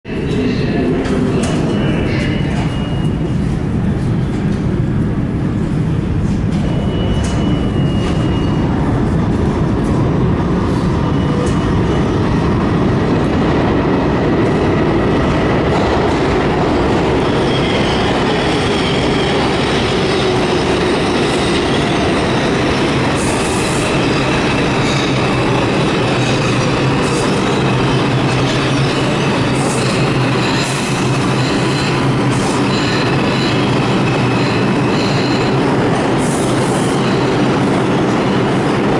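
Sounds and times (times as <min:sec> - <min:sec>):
subway train wheels rumbling: 0:00.0 - 0:38.9
high wheel squeal: 0:26.3 - 0:35.7.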